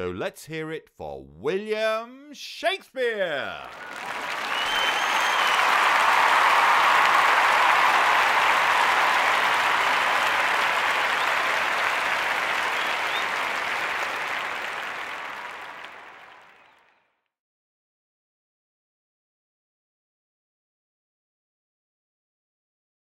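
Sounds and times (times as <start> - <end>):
audience applause: 3.2 - 16.9.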